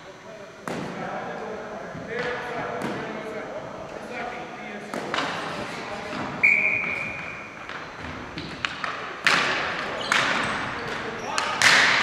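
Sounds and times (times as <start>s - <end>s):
referee's whistle: 6.4s - 7.5s.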